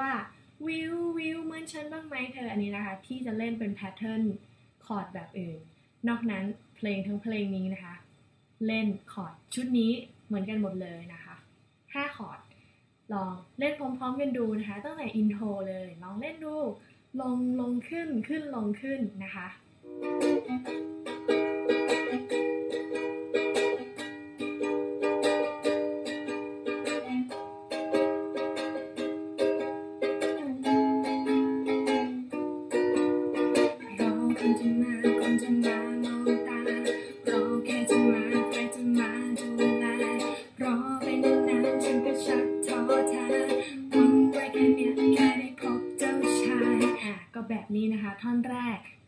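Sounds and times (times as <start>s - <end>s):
ukulele strumming chords: 19.9s - 47.1s.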